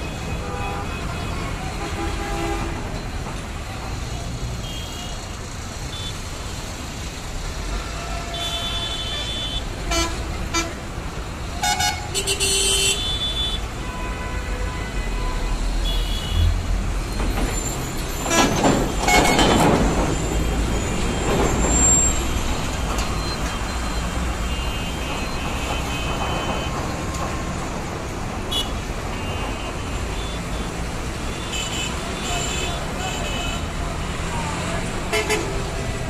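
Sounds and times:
vehicle horns: 0.0 - 2.9, 4.6 - 6.2, 7.6 - 10.9, 11.5 - 16.6, 18.3 - 19.6, 24.0 - 26.9, 28.4 - 33.8, 35.1 - 35.7
heavy traffic engines rumbling: 0.0 - 36.0.

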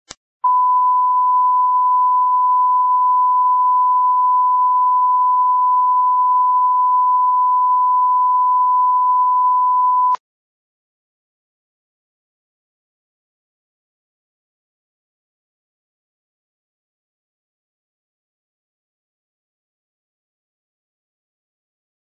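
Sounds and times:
steady test tone beep: 0.4 - 10.2.

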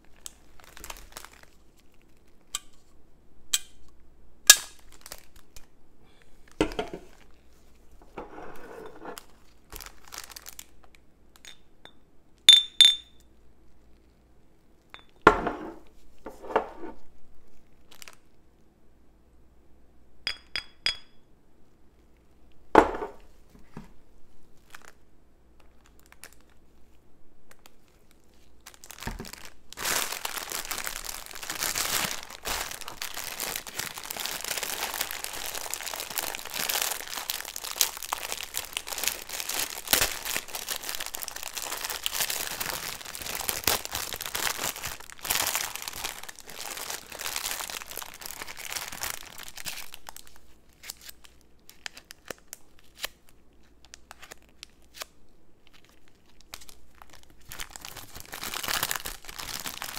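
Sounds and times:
plastic packets crinkling: 0.0 - 2.6, 4.5 - 5.8, 9.2 - 11.0, 17.7 - 18.3, 24.6 - 25.0, 25.6 - 26.7, 27.5 - 59.9.

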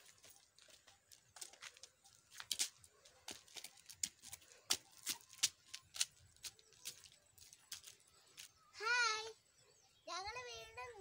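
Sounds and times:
flip-flops slapping on concrete: 0.0 - 8.5.

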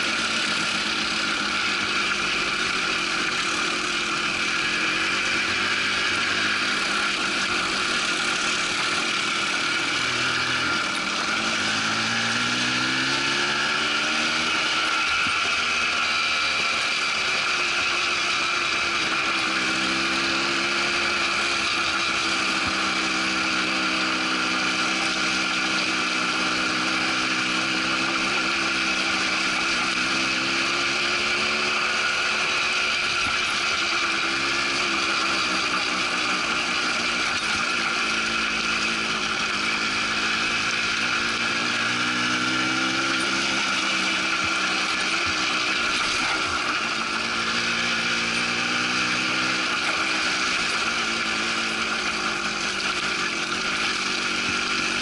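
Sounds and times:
quad bike engine running: 0.0 - 55.0
steady high whine: 0.0 - 55.0.

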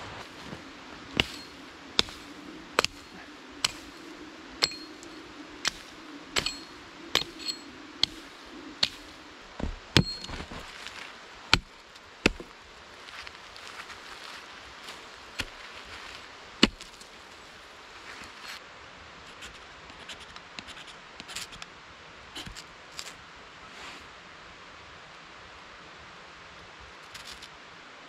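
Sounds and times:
blade chopping wood: 1.1 - 4.0, 4.6 - 10.7, 11.5 - 12.5, 16.6 - 17.0.

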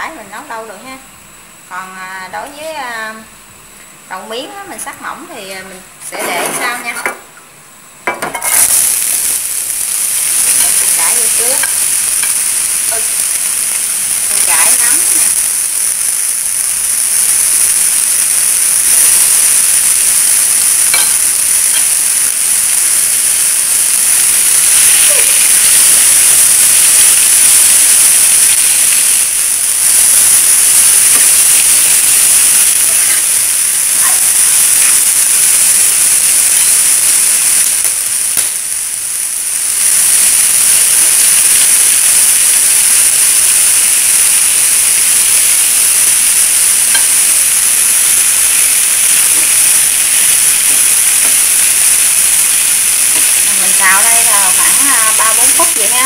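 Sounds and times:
vegetables sizzling in oil: 0.0 - 56.0.

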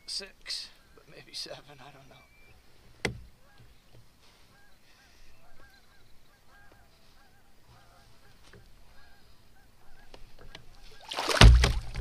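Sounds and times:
geese honking: 4.5 - 11.2.

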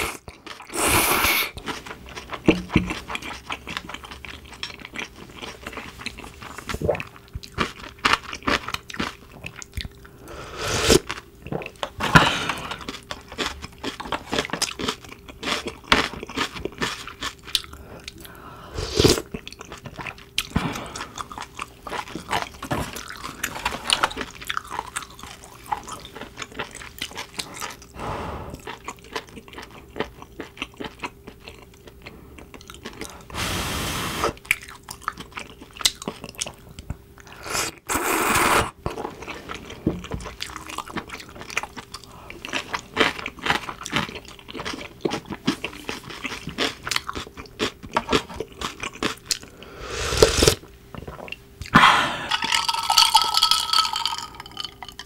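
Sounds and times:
wet chewing and crackling: 0.0 - 0.8, 1.4 - 10.2, 11.0 - 18.4, 19.1 - 28.0, 28.6 - 33.3, 34.4 - 37.8, 38.8 - 49.6, 50.5 - 55.0.

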